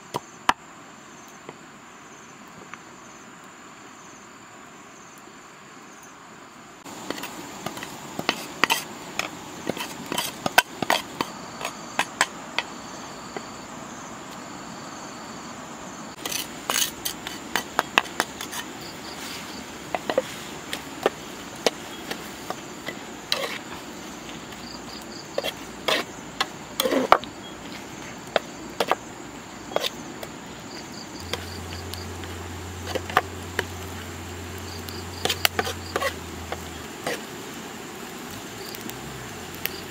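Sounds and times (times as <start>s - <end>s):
insects chirping: 0.0s - 39.9s
metal spatula scraping iron pan: 7.0s - 12.7s, 16.2s - 29.0s, 31.2s - 33.9s, 35.1s - 37.3s.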